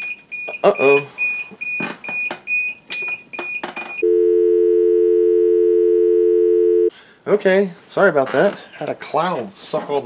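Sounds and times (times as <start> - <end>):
loud steady low tone: 4.0 - 6.9.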